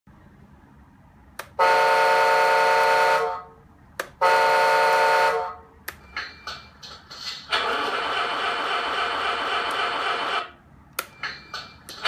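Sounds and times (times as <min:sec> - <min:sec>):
toy horn blasts: 0:01.5 - 0:03.5, 0:04.2 - 0:05.6.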